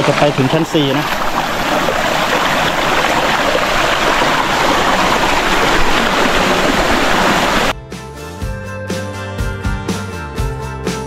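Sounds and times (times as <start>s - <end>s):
waterfall rushing over rocks: 0.0s - 7.7s.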